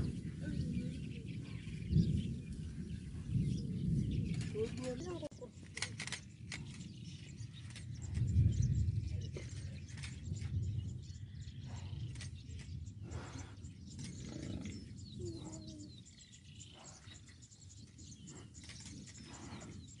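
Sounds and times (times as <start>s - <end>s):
small birds chirping: 0.0s - 20.0s
low animal call: 13.1s - 17.2s.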